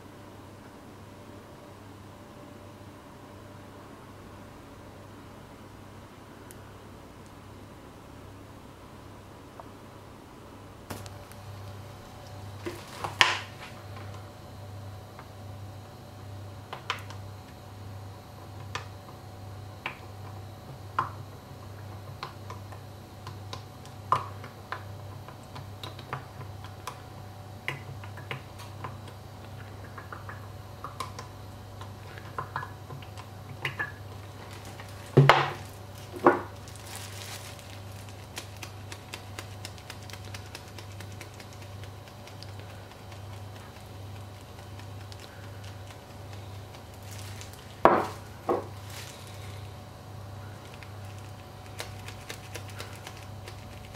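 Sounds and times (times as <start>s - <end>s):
steady low hum: 0.0s - 53.9s
rustle of seasoning: 34.1s - 49.7s, 50.4s - 53.9s.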